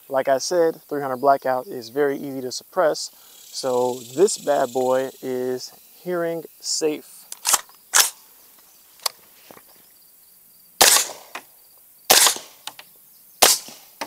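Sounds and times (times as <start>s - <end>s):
suppressed rifle shots: 7.4s - 8.2s, 10.8s - 11.4s, 12.1s - 12.7s, 13.4s - 14.0s.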